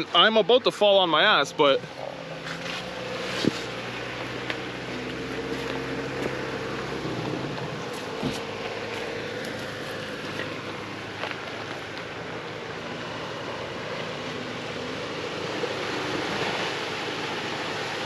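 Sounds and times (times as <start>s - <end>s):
engine running at low revs: 1.1s - 18.0s.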